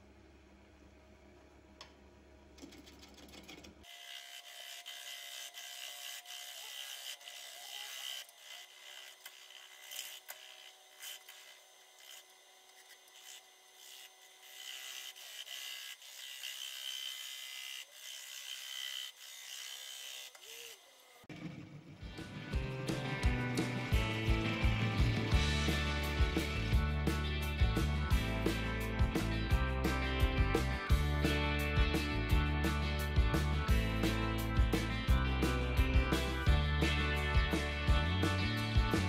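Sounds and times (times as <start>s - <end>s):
wood lathe tool cutting: 3.8s - 21.4s.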